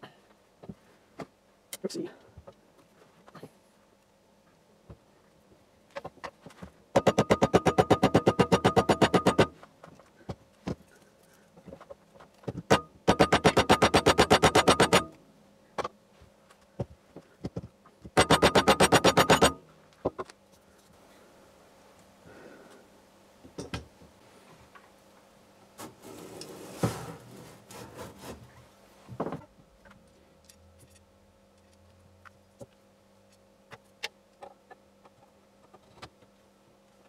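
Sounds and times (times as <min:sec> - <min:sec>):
rapid mechanical clicking: 0:13.1 - 0:15.1, 0:18.2 - 0:19.6.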